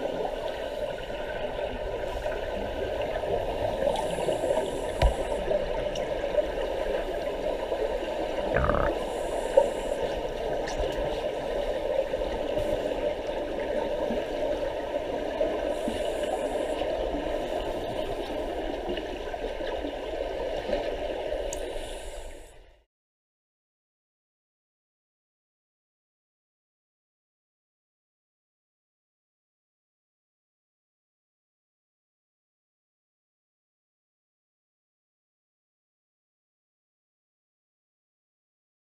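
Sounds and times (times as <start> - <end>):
underwater rushing noise: 0.0 - 22.5
exhaled bubbles: 8.4 - 9.2.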